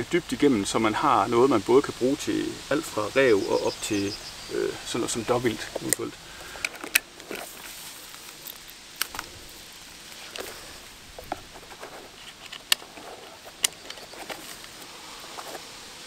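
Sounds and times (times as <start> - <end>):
rifle gear clicks and knocks: 5.5 - 9.5, 10.1 - 15.7.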